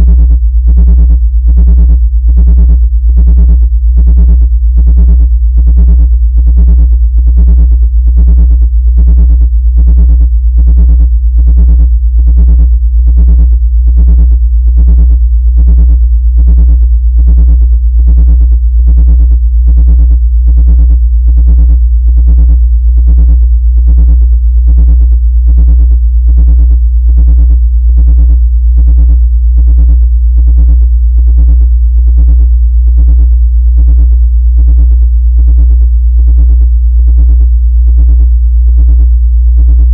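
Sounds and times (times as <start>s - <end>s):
pulsing buzzy electronic tone: 0.0s - 30.8s
deep synthesized hum: 0.0s - 32.6s, 33.2s - 35.1s, 38.9s - 39.9s.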